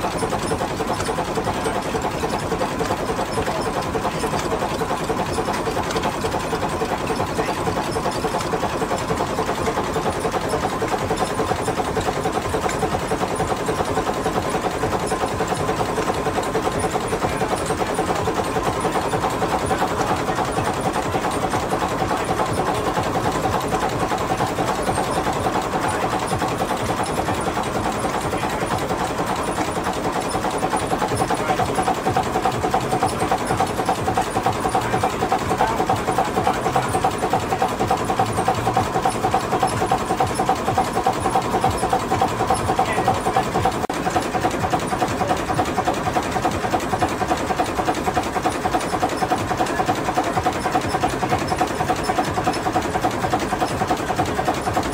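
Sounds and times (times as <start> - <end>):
diesel engine clattering: 0.0 - 54.9.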